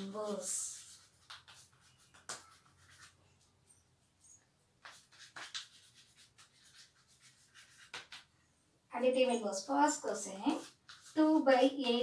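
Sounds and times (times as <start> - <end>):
chalk scratching on blackboard: 0.0 - 3.2, 4.8 - 8.3, 9.9 - 12.0.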